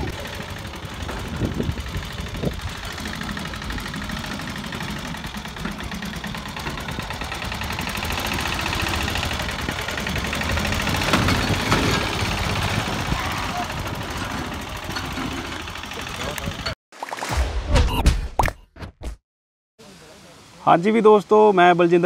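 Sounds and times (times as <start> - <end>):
small tractor engine running: 0.0 - 16.8.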